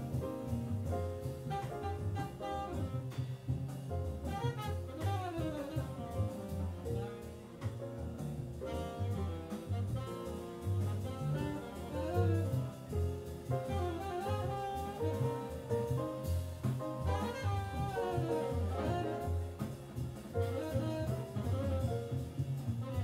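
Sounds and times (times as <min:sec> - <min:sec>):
drum kit with cymbals: 0:00.0 - 0:23.0
upright double bass: 0:00.0 - 0:23.0
saxophone melody: 0:01.5 - 0:03.2, 0:04.3 - 0:06.2, 0:08.7 - 0:12.8, 0:13.6 - 0:15.9, 0:17.1 - 0:19.4, 0:20.4 - 0:22.2.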